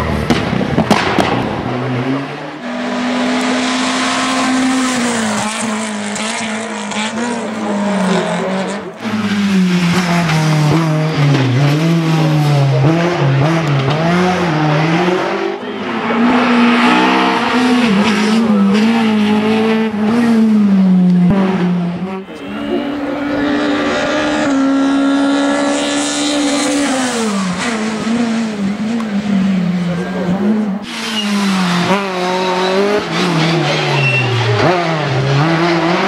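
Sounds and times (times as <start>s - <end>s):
rally car engines revving: 0.0s - 36.0s
tyre squeal: 30.9s - 31.7s, 33.9s - 34.5s.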